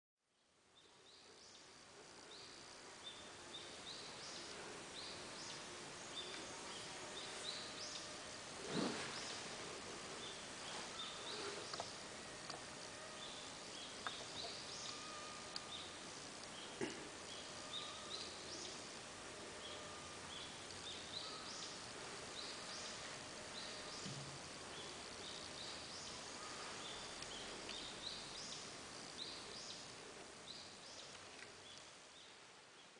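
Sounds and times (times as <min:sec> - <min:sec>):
background hiss: 0:00.3 - 0:32.9
birds chirping: 0:00.8 - 0:32.9
faint ticks: 0:11.4 - 0:12.7, 0:14.0 - 0:16.6.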